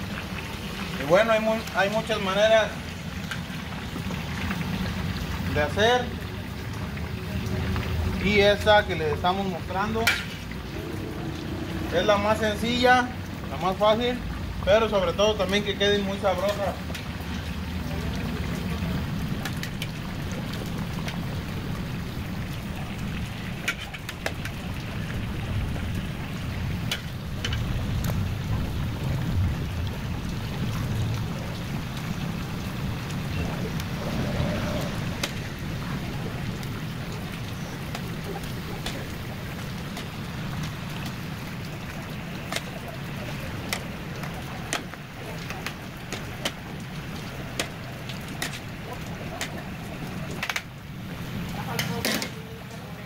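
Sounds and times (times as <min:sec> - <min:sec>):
meat frying in lard: 0:00.0 - 0:53.0
sharp frying pops: 0:10.0 - 0:10.6, 0:23.5 - 0:24.6, 0:37.6 - 0:41.2, 0:42.4 - 0:49.7.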